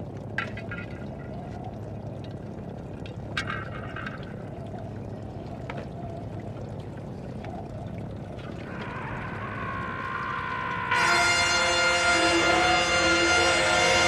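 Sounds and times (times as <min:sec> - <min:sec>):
fuel dripping into metal pan: 0:00.0 - 0:05.9
music with sustained tone: 0:10.8 - 0:14.0.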